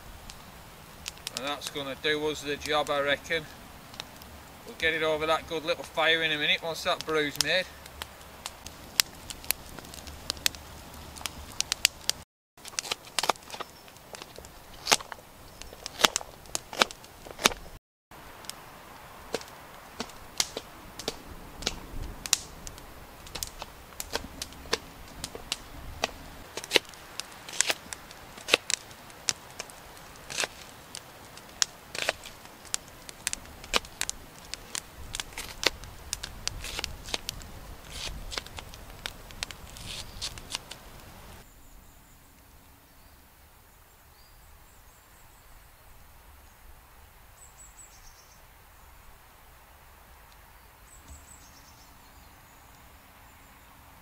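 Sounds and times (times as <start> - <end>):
campfire crackling and popping: 0.0 - 41.6.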